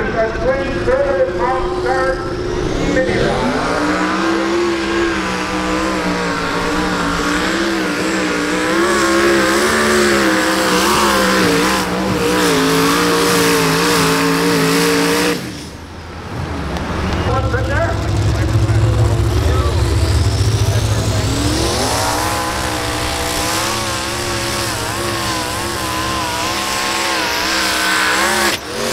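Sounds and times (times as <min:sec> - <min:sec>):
pulling tractor engine running flat out: 0:17.0 - 0:28.3.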